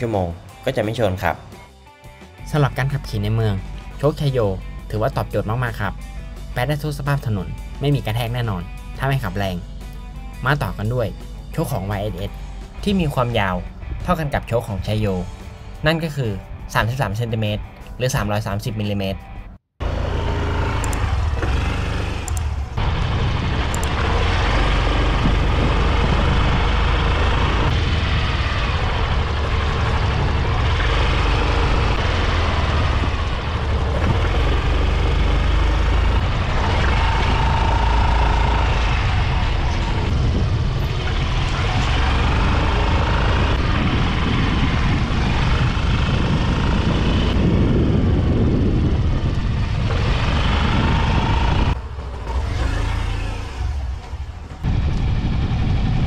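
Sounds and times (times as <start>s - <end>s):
scooter engine: 19.8s - 56.0s
wind rushing over microphone: 22.7s - 34.6s, 38.4s - 56.0s.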